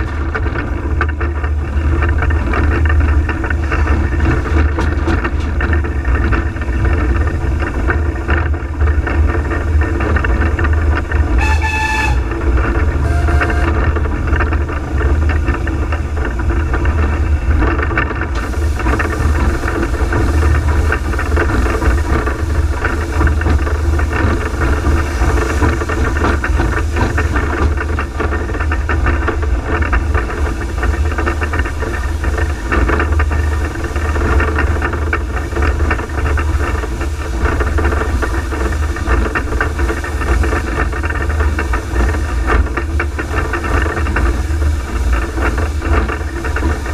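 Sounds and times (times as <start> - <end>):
steam locomotive cab rumble and rattling: 0.0 - 46.9
steam whistle toot: 11.4 - 12.4, 13.0 - 14.0.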